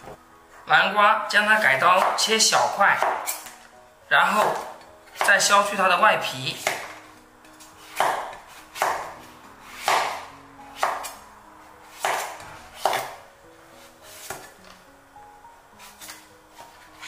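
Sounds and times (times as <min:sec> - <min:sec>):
soft background music: 0:00.0 - 0:17.0
cleaver slicing pumpkin rind: 0:06.3 - 0:11.2, 0:11.8 - 0:13.2, 0:13.8 - 0:14.6, 0:15.8 - 0:17.0.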